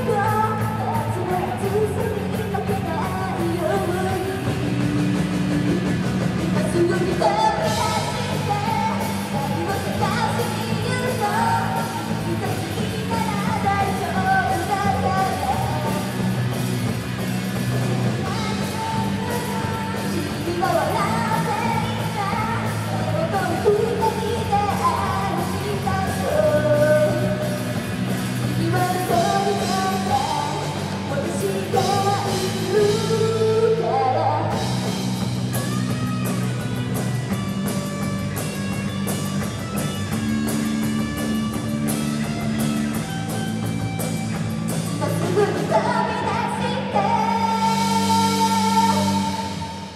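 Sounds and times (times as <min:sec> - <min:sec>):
girl singing lead vocal: 0:00.0 - 0:05.4, 0:06.4 - 0:16.4, 0:18.1 - 0:35.8, 0:44.9 - 0:49.9
live rock band playing: 0:00.0 - 0:49.9.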